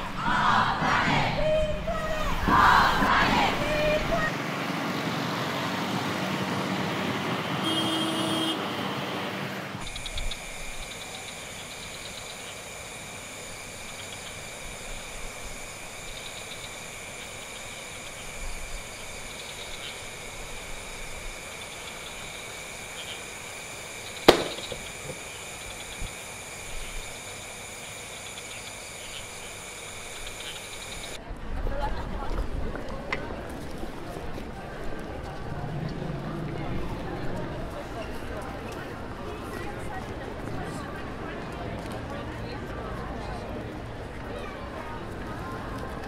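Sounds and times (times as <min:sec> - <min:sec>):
motor scooter running: 0:09.3 - 0:31.2
sharp click: 0:24.3 - 0:24.9.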